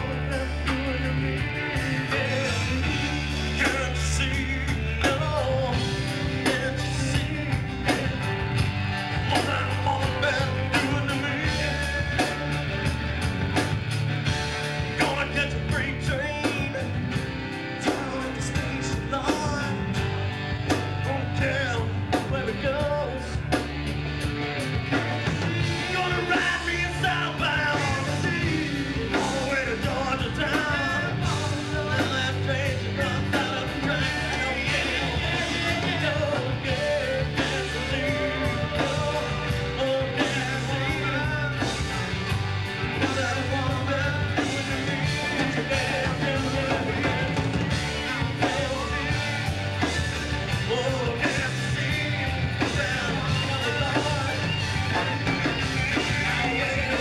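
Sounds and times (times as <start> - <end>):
person singing: 0.0 - 8.5, 9.2 - 13.0, 25.5 - 41.9, 42.8 - 57.0
live rock band: 0.0 - 57.0.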